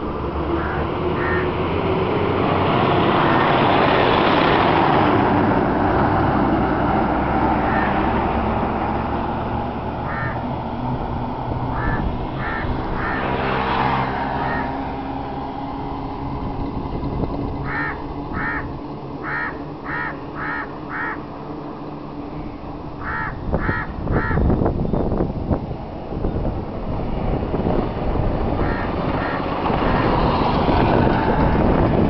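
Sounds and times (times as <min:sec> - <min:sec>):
low vehicle hum: 0:00.0 - 0:32.0
vehicle passing: 0:00.0 - 0:32.0
crow cawing: 0:00.6 - 0:01.5, 0:07.6 - 0:08.1, 0:10.0 - 0:10.5, 0:11.7 - 0:13.4, 0:14.4 - 0:14.8, 0:17.6 - 0:21.2, 0:23.0 - 0:24.5, 0:28.6 - 0:30.1.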